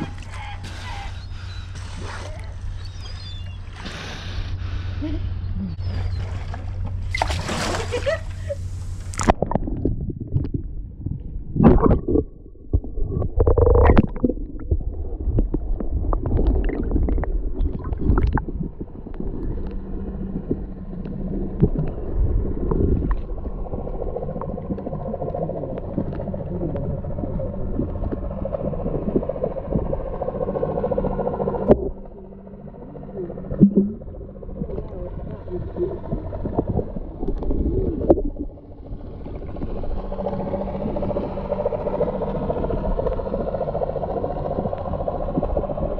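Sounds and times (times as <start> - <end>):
muffled underwater rumbling and gurgling: 0.0 - 45.9
underwater clicks: 11.6 - 30.0, 33.5 - 35.4.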